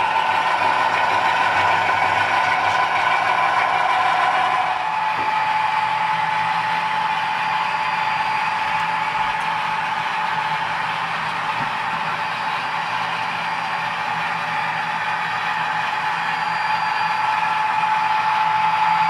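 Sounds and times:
wheels clattering on track: 0.0s - 5.4s
model train engine sound: 0.0s - 19.0s.

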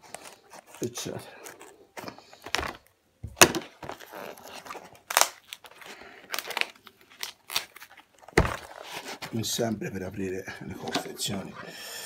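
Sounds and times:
scissors cutting plastic packaging: 0.0s - 2.8s, 3.5s - 9.4s
plastic crackling and crinkling: 0.0s - 11.6s
sharp plastic cracks: 2.0s - 4.0s, 4.9s - 8.8s.

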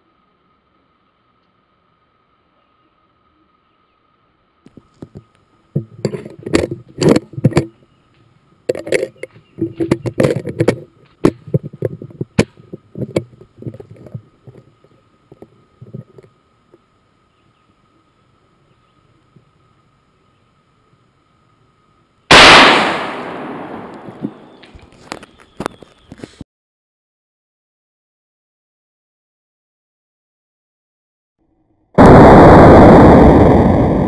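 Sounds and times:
faint high whine: 13.1s - 26.1s.

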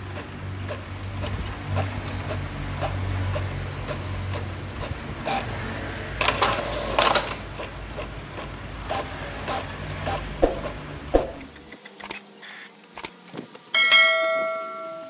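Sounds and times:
printer mechanism drone: 0.0s - 12.2s.

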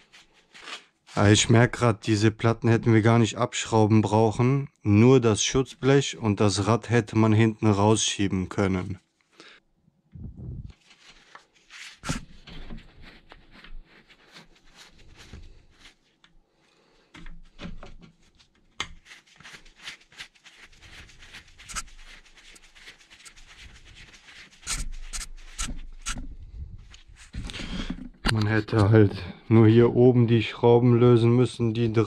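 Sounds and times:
screwdriver clicks and scrapes: 24.6s - 26.3s.

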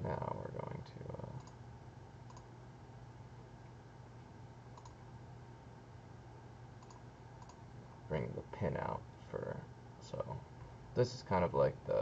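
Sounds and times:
low steady hum: 0.0s - 12.0s
computer mouse clicks: 1.4s - 1.6s, 2.3s - 2.5s, 4.7s - 5.0s, 6.8s - 7.6s.

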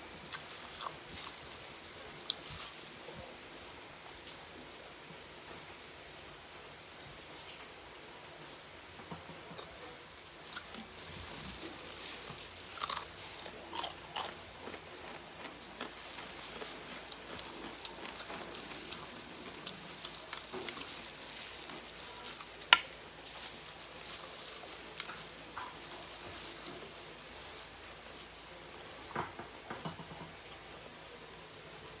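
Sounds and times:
chewing crispy fried chicken: 0.0s - 4.0s, 10.1s - 29.8s.

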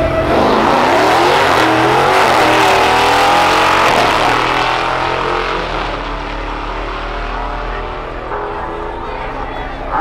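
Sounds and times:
drag car engines accelerating: 0.0s - 10.0s.

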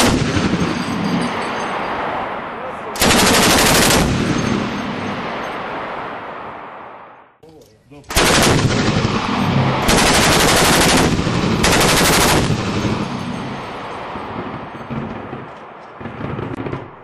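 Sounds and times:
gunfire echo: 0.0s - 1.1s, 3.0s - 7.0s, 8.1s - 17.0s
automatic weapon bursts: 3.0s - 4.1s, 8.1s - 8.7s, 9.9s - 12.5s.

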